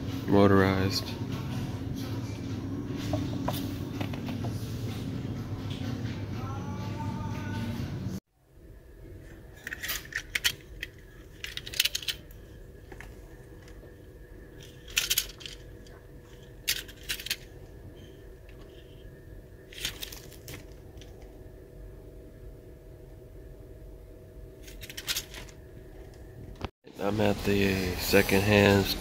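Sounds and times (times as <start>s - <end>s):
faint steady hum: 0.0s - 29.0s
plastic toys clicking and clattering: 9.6s - 13.7s, 14.6s - 17.5s, 24.6s - 25.5s.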